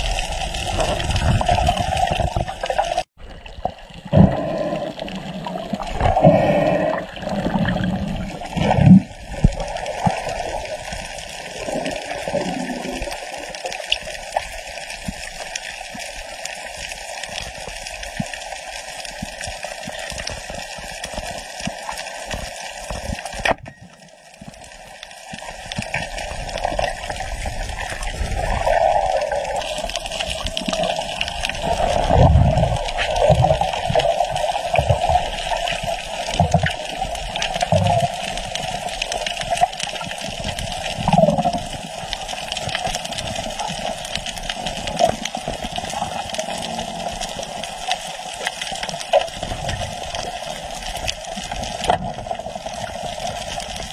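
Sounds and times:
low underwater thumps and gurgles: 0:00.0 - 0:11.0, 0:25.4 - 0:39.6
muffled underwater rush: 0:00.0 - 0:53.9.

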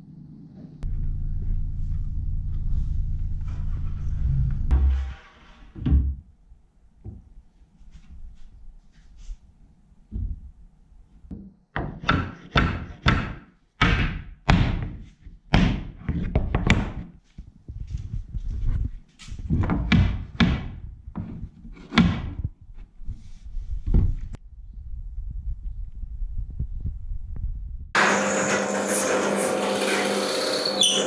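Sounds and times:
heavy wooden thumps and knocks: 0:05.8 - 0:06.3, 0:19.5 - 0:22.6.

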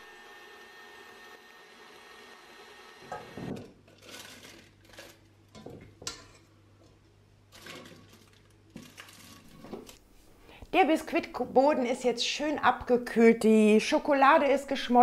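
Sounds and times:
stand mixer whisking cream: 0:00.0 - 0:03.4.

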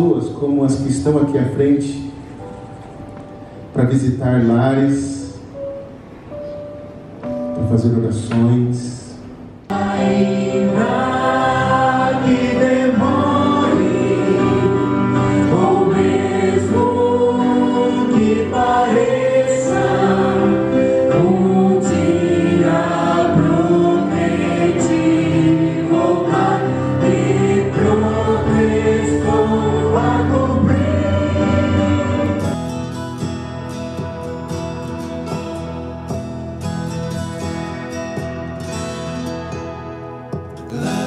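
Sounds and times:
group singing a hymn: 0:09.7 - 0:32.6.

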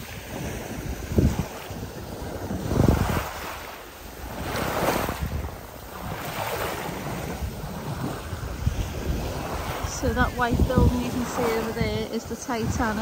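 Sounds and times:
waves washing on shingle beach: 0:00.0 - 0:13.0
wind buffeting microphone: 0:00.0 - 0:13.0.

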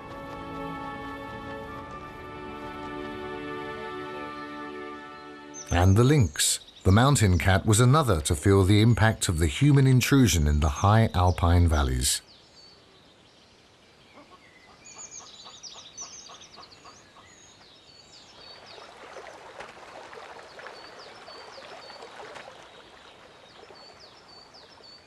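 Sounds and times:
small birds chirping: 0:04.2 - 0:10.4, 0:11.2 - 0:19.3, 0:20.4 - 0:25.0.

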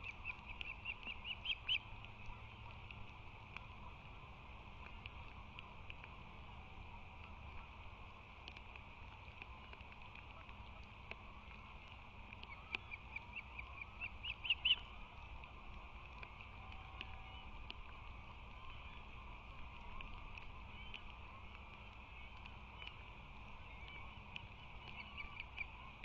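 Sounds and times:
osprey chirping: 0:00.0 - 0:01.9, 0:12.4 - 0:15.3, 0:23.6 - 0:26.0.

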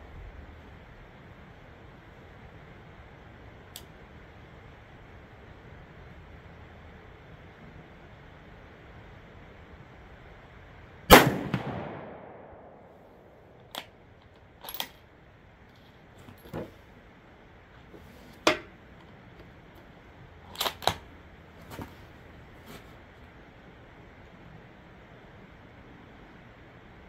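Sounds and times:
rifle shot with echo: 0:11.1 - 0:13.2
rifle bolt metallic clicks: 0:20.5 - 0:21.0.

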